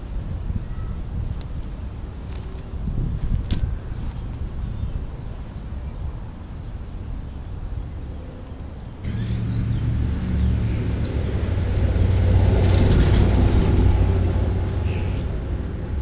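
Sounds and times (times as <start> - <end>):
truck driving past: 9.0 - 16.0.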